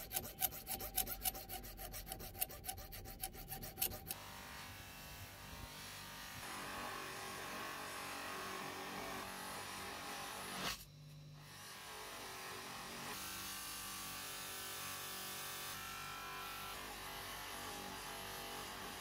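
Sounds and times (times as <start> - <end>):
file rasping on metal: 0.0 - 4.4.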